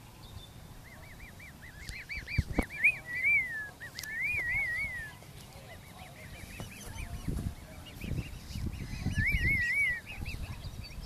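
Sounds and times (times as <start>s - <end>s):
swans whistling calls: 0.0s - 11.0s.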